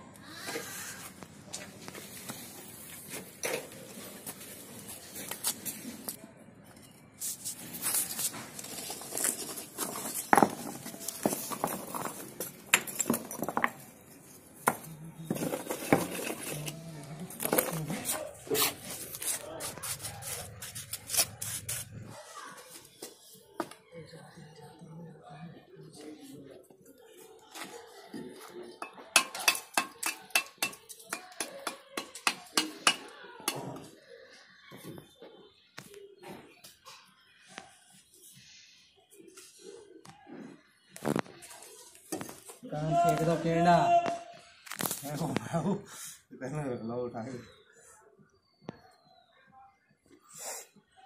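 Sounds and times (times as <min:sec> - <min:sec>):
bricks and mortar pan clinking: 0:08.6 - 0:13.9, 0:14.6 - 0:19.0, 0:28.8 - 0:33.8.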